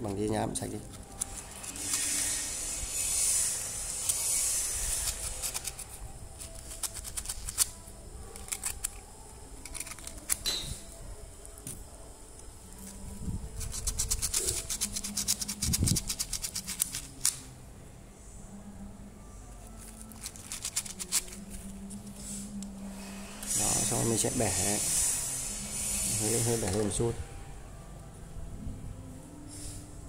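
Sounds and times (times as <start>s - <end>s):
sandpaper scratching metal: 0.6s - 10.4s, 12.8s - 17.4s, 19.8s - 22.4s, 23.0s - 27.1s.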